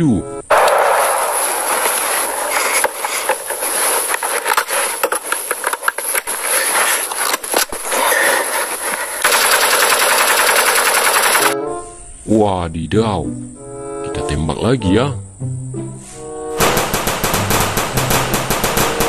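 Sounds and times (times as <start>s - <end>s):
rifle automatic fire: 0.5s - 4.0s, 9.2s - 11.6s, 16.6s - 19.0s.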